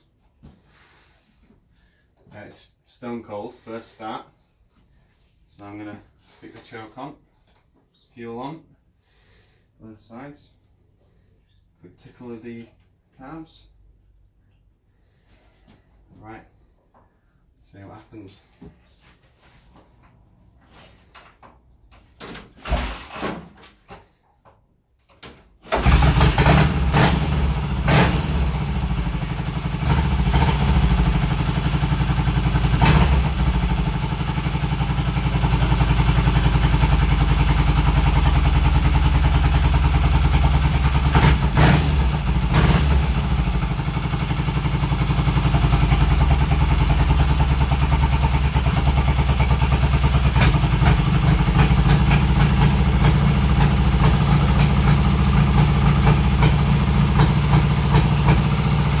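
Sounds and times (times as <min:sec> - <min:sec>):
motorcycle engine running: 0:25.8 - 0:59.0.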